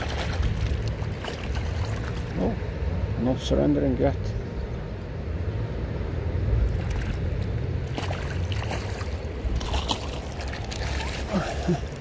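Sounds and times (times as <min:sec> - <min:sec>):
fish splashing at surface: 0:00.0 - 0:02.3, 0:06.7 - 0:11.8
river water flowing: 0:00.0 - 0:03.6, 0:04.6 - 0:12.0.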